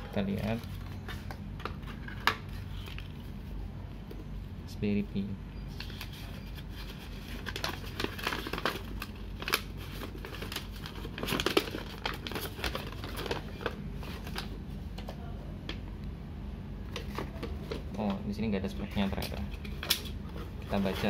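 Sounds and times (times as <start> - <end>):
paper leaflet crinkling: 5.8 - 14.5, 19.0 - 21.0.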